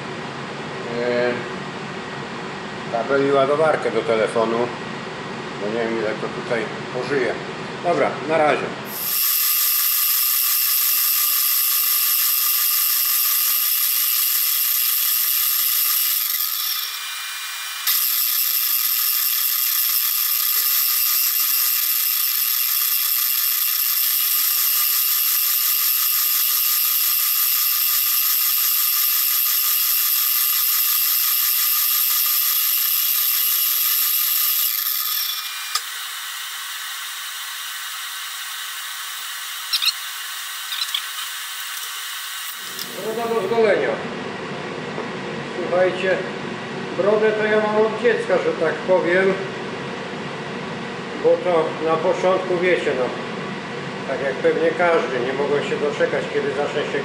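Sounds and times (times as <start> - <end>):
milling cutter whining through steel: 8.9 - 43.6.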